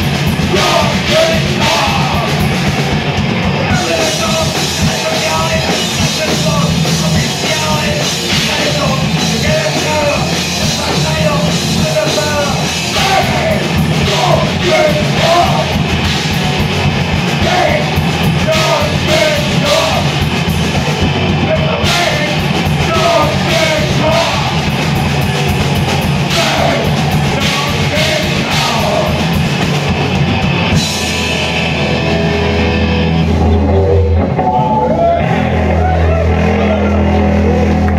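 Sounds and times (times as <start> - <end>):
bass guitar: 0.0 - 37.9
distorted electric guitar: 0.0 - 37.9
drum kit: 0.0 - 37.9
shouted lead vocal: 0.4 - 2.6, 3.5 - 16.0, 17.2 - 20.2, 21.3 - 24.8, 26.0 - 29.4, 33.8 - 37.7.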